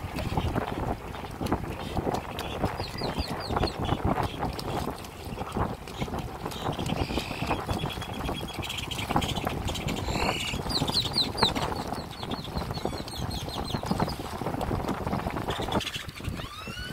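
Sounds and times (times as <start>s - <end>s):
boat motor: 0.0s - 16.9s
water: 0.0s - 16.9s
birds calling: 1.8s - 14.3s.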